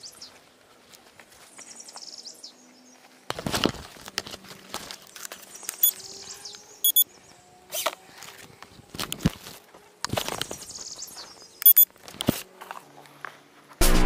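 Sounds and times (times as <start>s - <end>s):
small birds chirping: 0.0s - 3.3s, 4.4s - 9.3s, 10.0s - 11.9s
rustling on microphone: 3.0s - 5.8s
short electronic beeps: 5.8s - 6.0s, 6.8s - 7.1s, 11.6s - 11.9s.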